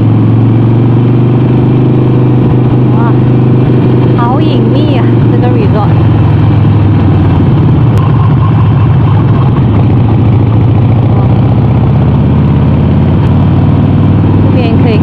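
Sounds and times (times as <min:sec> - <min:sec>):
motorcycle engine running at low revs: 0:00.0 - 0:15.0.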